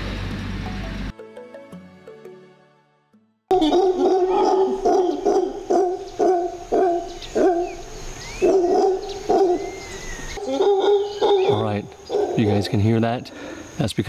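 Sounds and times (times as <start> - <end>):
howler monkeys howling: 3.5 - 13.8
faint bird whistles: 8.2 - 8.5.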